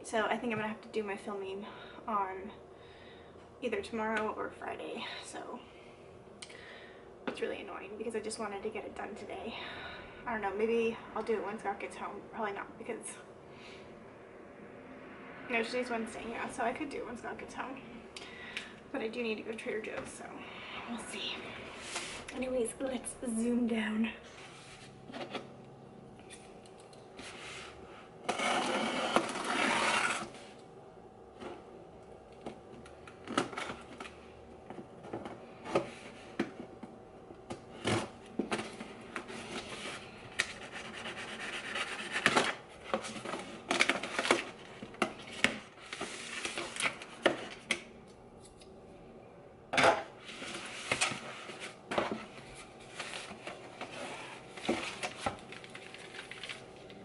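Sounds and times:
cardboard and paper rustling: 37.8 - 47.6, 50.2 - 57.0.

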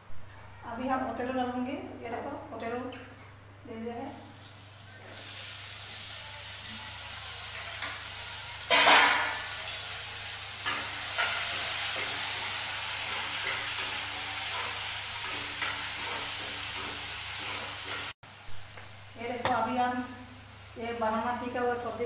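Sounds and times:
potatoes sizzling in hot oil: 4.1 - 22.0.

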